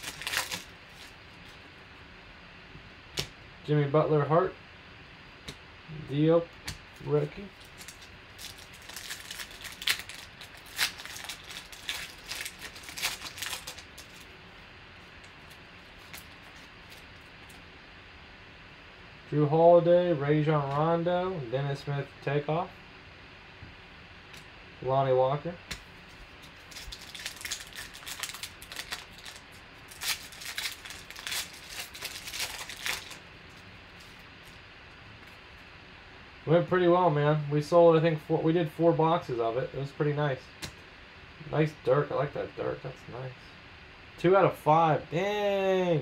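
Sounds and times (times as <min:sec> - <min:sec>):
foil wrapper crinkling and tearing: 0:00.0 - 0:01.6, 0:07.5 - 0:14.3, 0:15.2 - 0:17.6, 0:26.2 - 0:34.6.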